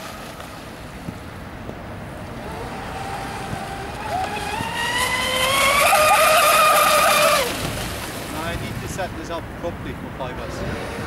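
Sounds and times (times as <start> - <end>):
wind noise rumble: 0.0 - 11.0
electric motor whine: 2.2 - 7.6.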